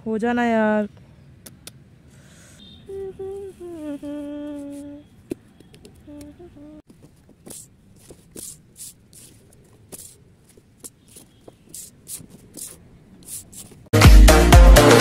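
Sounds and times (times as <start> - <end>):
paper rustling: 6.9 - 13.9.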